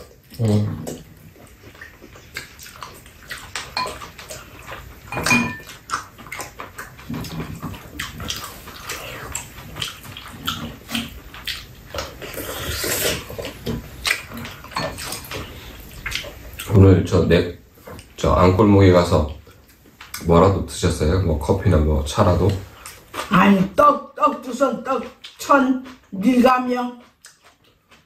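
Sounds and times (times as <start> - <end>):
chewing and mouth noises: 0.0 - 18.4, 19.0 - 20.4, 21.5 - 28.0.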